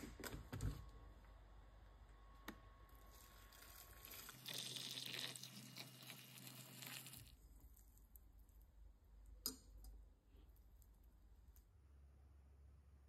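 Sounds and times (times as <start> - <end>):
water pouring into a pot: 3.1 - 7.4.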